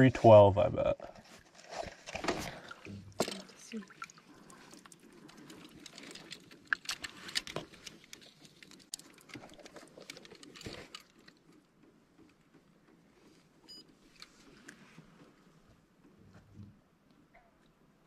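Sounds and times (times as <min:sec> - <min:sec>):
handling clicks and rustling: 0:04.7 - 0:16.2.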